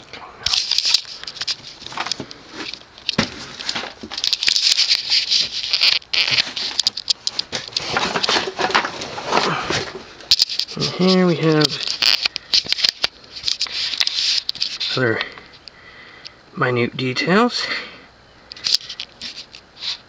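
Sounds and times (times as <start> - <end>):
cardboard box rustling and scraping: 1.0 - 12.0.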